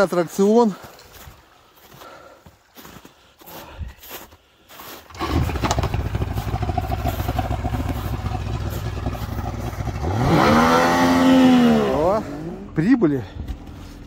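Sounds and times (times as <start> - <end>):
engine clattery rumble revving: 5.1 - 12.9.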